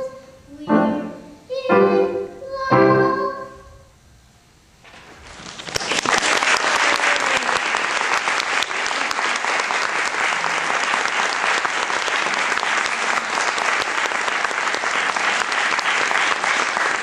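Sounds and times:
audience applauding: 5.2 - 17.0.

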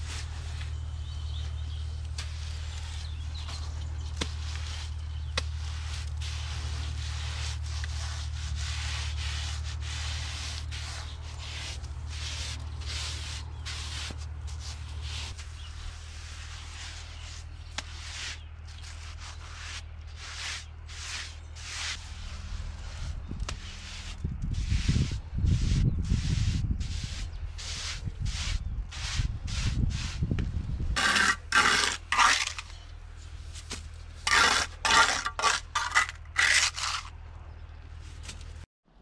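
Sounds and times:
hands scraping render on block: 0.0 - 37.2.

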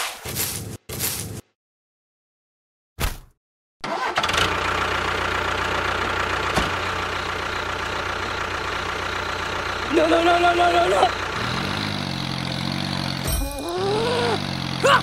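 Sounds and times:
engine starting and idling: 3.8 - 12.0.

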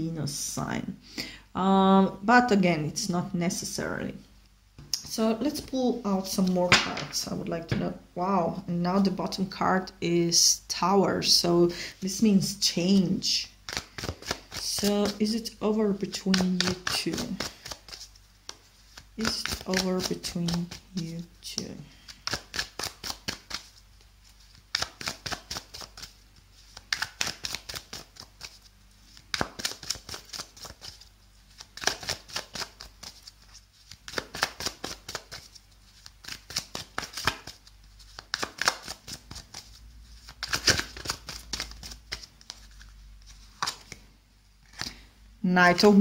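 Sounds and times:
cards being shuffled: 13.6 - 45.1.

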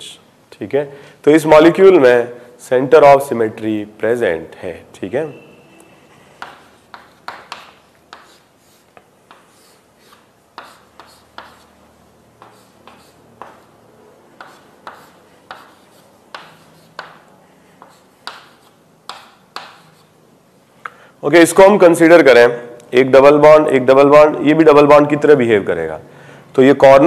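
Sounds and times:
pen scratching on paper: 6.4 - 11.8, 12.4 - 13.8, 14.4 - 20.2.

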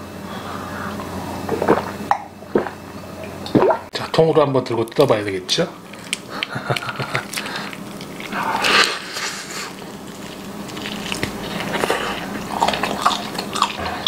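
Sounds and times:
crunching crisp pork skin: 4.8 - 14.0
chewing: 5.8 - 14.0.

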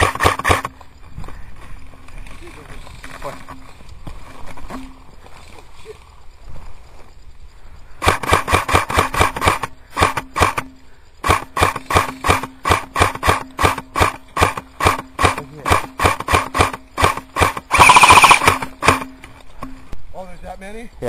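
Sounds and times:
airsoft rifle rapid fire: 0.0 - 0.7, 8.0 - 19.1.

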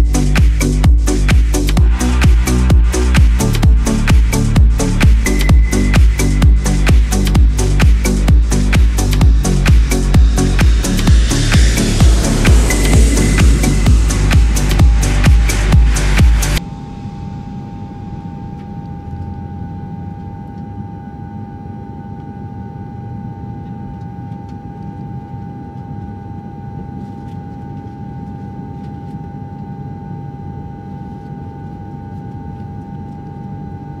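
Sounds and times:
propeller engine low rumble: 0.0 - 22.1
constant high whine: 0.0 - 34.0.

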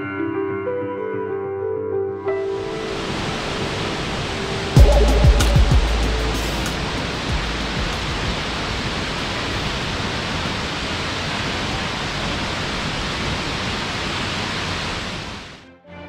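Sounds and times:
waterfall roaring: 2.9 - 15.6.

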